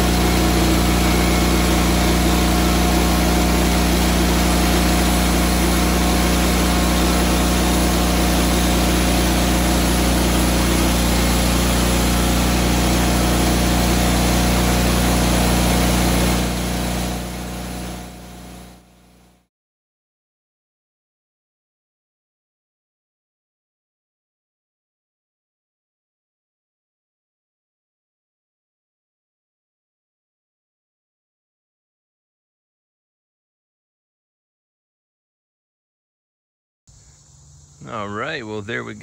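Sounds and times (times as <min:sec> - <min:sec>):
sawmill engine running steadily: 0:00.0 - 0:19.4, 0:37.8 - 0:39.0.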